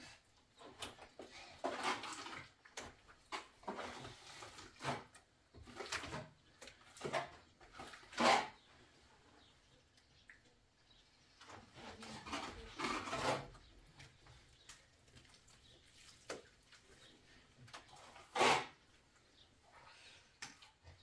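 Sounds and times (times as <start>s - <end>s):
trowel scraping plaster: 1.6s - 5.2s, 7.0s - 8.7s, 11.7s - 13.7s, 17.9s - 18.9s.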